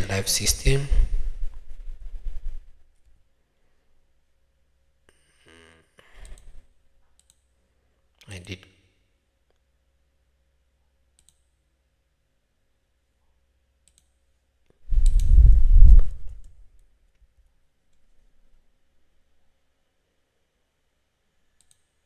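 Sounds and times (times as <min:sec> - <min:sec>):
muffled rumble on microphone: 0:00.6 - 0:02.7, 0:14.9 - 0:16.5
faint computer mouse clicks: 0:06.2 - 0:07.5, 0:11.2 - 0:11.5, 0:13.8 - 0:14.2, 0:15.0 - 0:15.3, 0:21.6 - 0:21.9.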